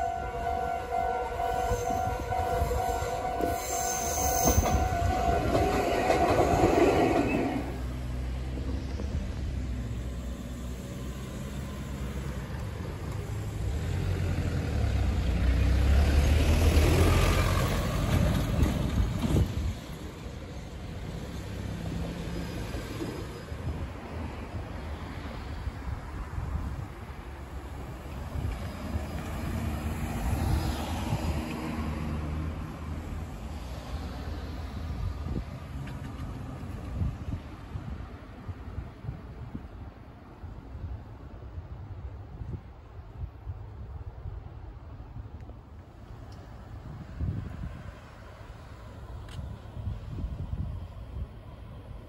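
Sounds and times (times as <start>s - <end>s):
level crossing warning bell: 0.0s - 6.4s
low train rumble: 0.0s - 52.0s.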